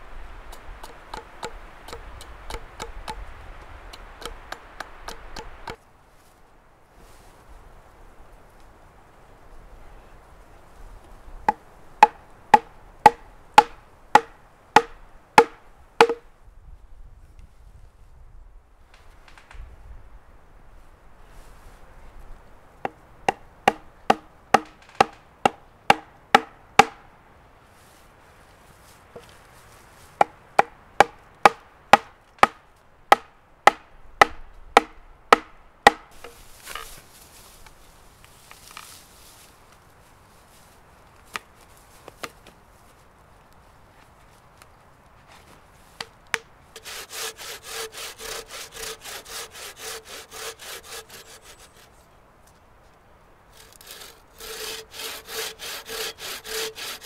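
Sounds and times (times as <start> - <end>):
rustling in dry grass: 0.0 - 15.1, 16.0 - 22.9, 27.4 - 30.4, 36.0 - 57.0
sharp wooden knocks: 11.5 - 16.2, 22.8 - 27.0, 30.2 - 36.2.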